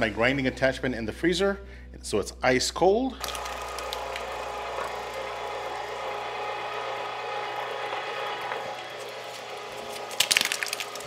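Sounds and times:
electric meat grinder running: 3.2 - 11.0.

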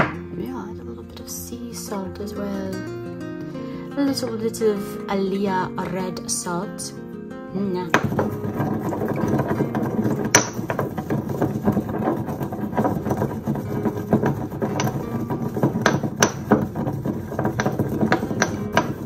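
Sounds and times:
pestle pounding in a mortar: 7.9 - 19.0.

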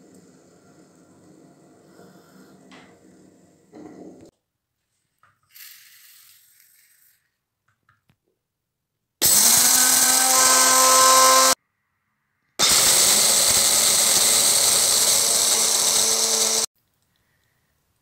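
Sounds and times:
food chopper motor whine: 9.2 - 11.6, 12.6 - 16.7.

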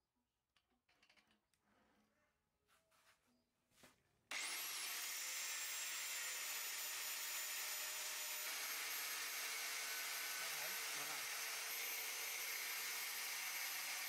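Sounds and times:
angle grinder whining: 4.3 - 14.0.

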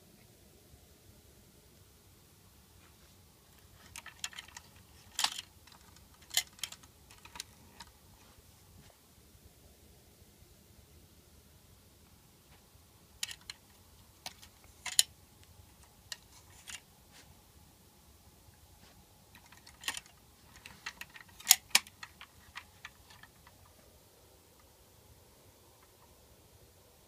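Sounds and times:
toy truck parts clicking and knocking: 3.6 - 8.0, 13.2 - 16.9, 19.3 - 23.7.

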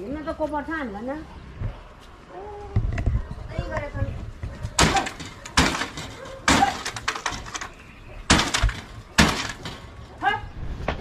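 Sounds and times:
loud crashing bangs with rattle: 4.8 - 7.7, 8.3 - 10.0.

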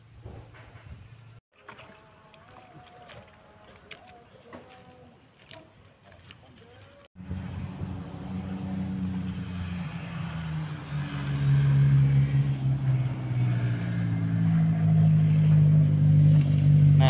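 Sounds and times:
engine humming: 7.1 - 17.0.

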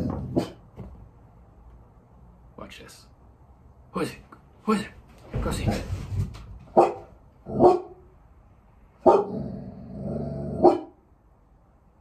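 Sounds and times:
dog barking: 0.2 - 0.6, 6.7 - 8.1, 9.0 - 9.4, 10.5 - 11.0.

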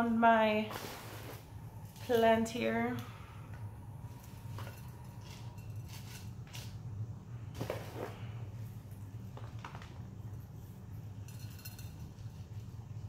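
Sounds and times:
steady low hum: 0.0 - 13.0
rustling scrapes: 0.6 - 2.4, 4.1 - 6.8, 7.5 - 8.5.

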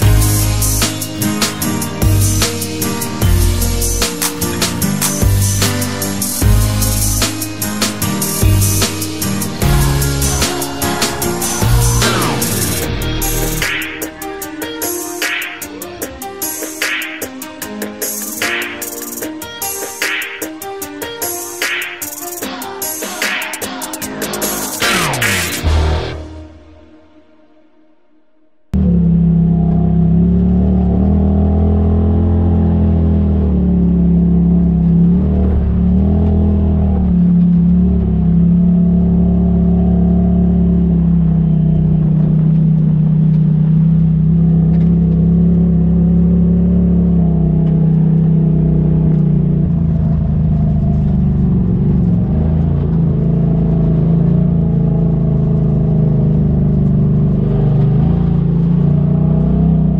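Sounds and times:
vehicle engine running: 0.0 - 16.6, 28.7 - 59.9.

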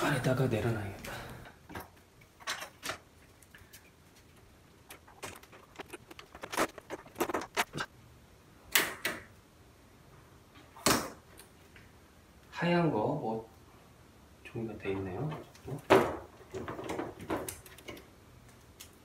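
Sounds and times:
tv panel parts clattering: 1.7 - 3.0, 15.3 - 18.1.

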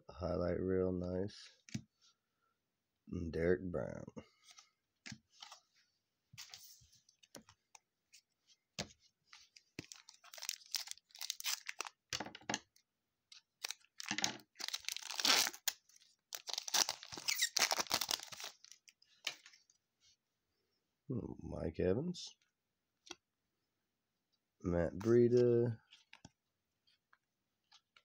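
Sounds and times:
plastic foil wrapper ripping: 9.9 - 12.0, 13.6 - 18.8.

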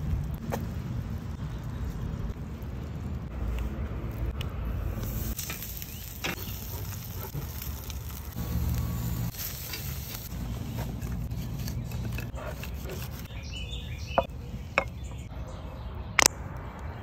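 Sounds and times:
fire crackling: 0.0 - 15.3
low steady rumble: 0.0 - 15.4
food sizzling on a grill: 4.8 - 11.7.

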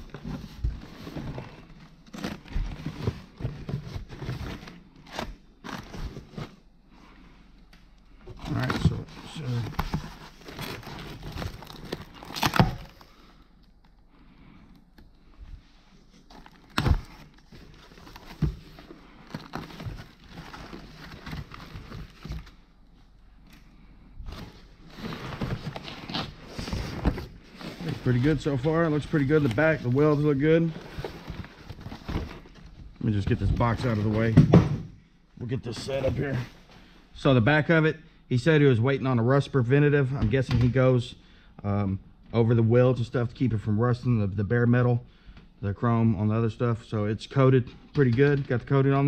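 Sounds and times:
bubble wrap crinkling: 8.5 - 14.0.

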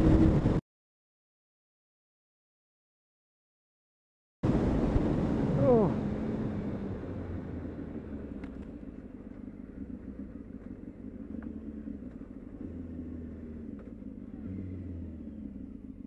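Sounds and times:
motorcycle engine droning: 0.0 - 0.6, 4.5 - 16.0.

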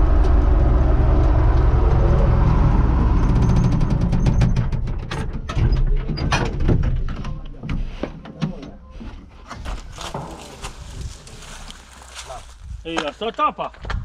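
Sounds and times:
tractor diesel engine rumble: 0.0 - 12.9
footsteps in dry grass: 9.7 - 13.4.

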